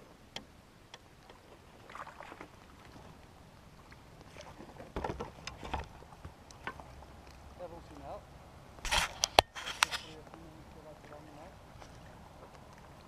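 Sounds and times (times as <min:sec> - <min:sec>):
water splashing: 0:00.0 - 0:13.0.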